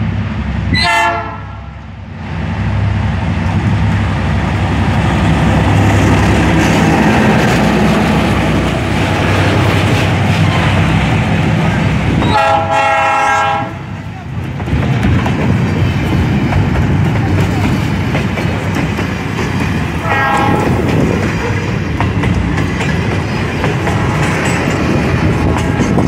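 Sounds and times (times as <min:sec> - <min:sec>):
diesel locomotive engine: 0:00.0 - 0:26.0
locomotive horn: 0:00.7 - 0:01.8, 0:12.2 - 0:13.9, 0:20.0 - 0:20.8.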